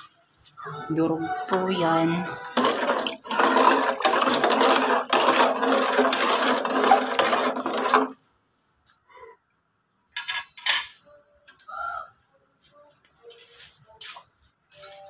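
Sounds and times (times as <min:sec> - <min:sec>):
metal ladle scraping a pot: 0:01.4 - 0:08.2.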